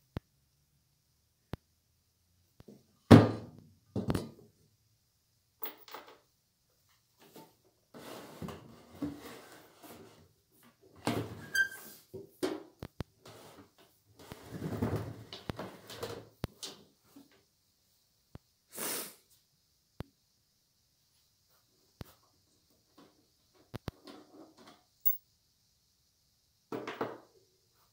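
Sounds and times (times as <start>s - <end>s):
knocks scrapes and rubbing: 7.3s - 10.2s.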